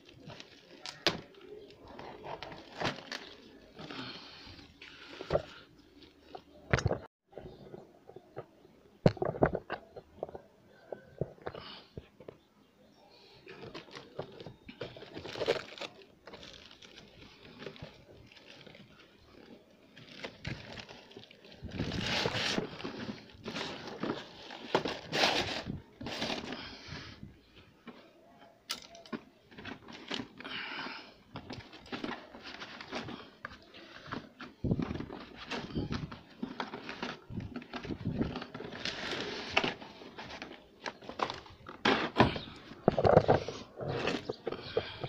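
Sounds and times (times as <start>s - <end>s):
cardboard packaging rustling: 0.0s - 6.6s, 13.5s - 26.8s, 31.3s - 45.0s.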